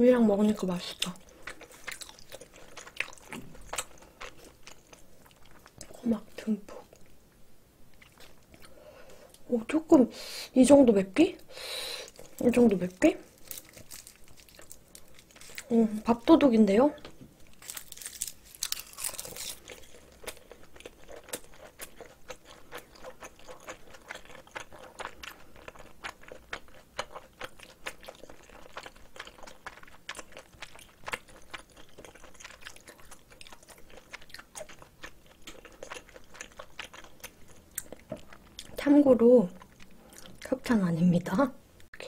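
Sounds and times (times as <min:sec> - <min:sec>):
close chewing with wet crunches: 0:01.0 - 0:06.0, 0:18.7 - 0:38.9.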